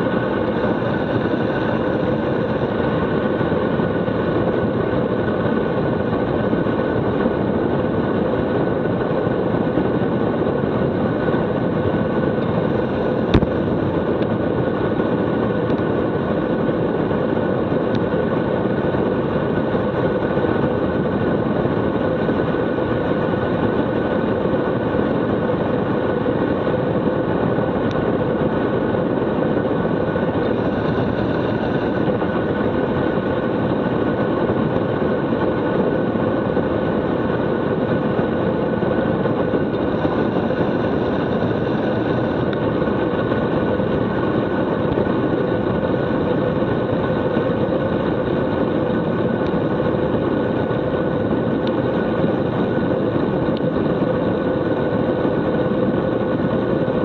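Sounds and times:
wind rushing over microphone: 0.0s - 57.0s.

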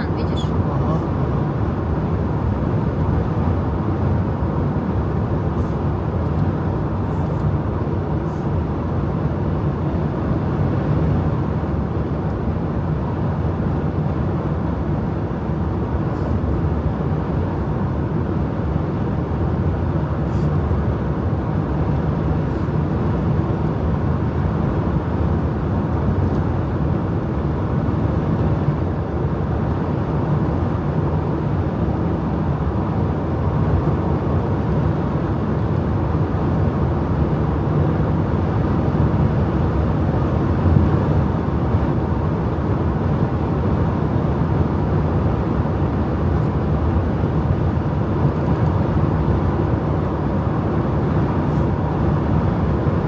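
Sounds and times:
car engine hum: 0.0s - 53.0s
road and tyre noise: 0.0s - 53.0s.

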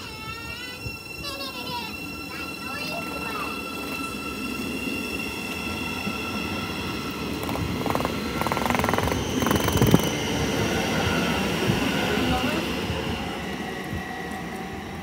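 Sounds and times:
electric train whine: 0.0s - 15.0s
rapid clicking: 7.4s - 10.1s.

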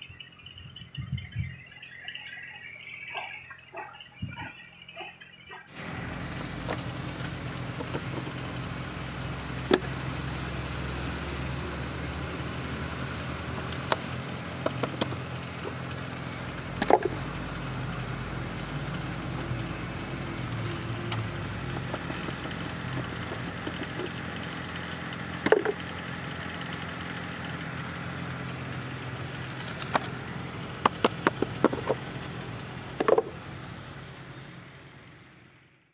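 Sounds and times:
engine hum: 0.0s - 35.9s.

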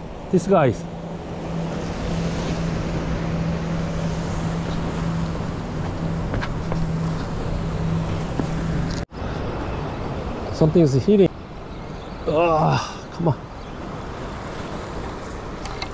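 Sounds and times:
boat engine running: 0.0s - 9.0s
sea noise: 0.0s - 15.9s
wind: 0.0s - 15.9s.

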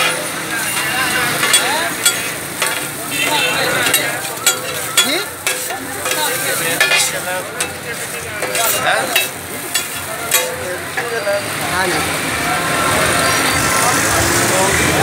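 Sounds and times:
meat sizzling: 0.0s - 11.0s
metal spatulas scraping griddle: 0.0s - 11.1s.

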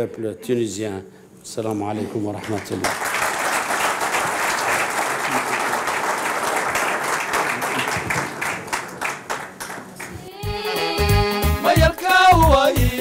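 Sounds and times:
audience applauding: 2.3s - 10.4s.

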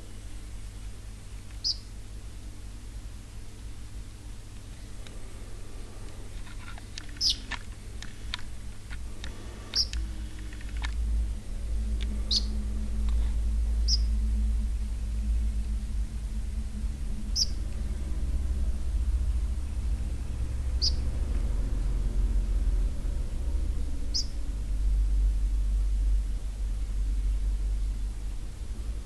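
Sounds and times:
steady low rumble: 0.0s - 29.0s
sparrow chirping: 1.6s - 1.9s, 7.1s - 7.5s, 9.7s - 10.0s, 12.2s - 12.6s, 13.8s - 14.2s, 17.3s - 17.7s, 20.8s - 21.1s, 24.0s - 24.4s.

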